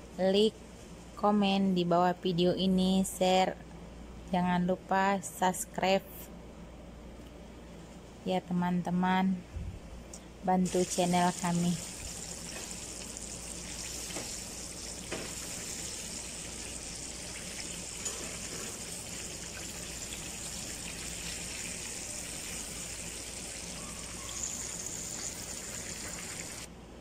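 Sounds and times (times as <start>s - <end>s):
oil sizzling and bubbling: 10.6s - 26.7s.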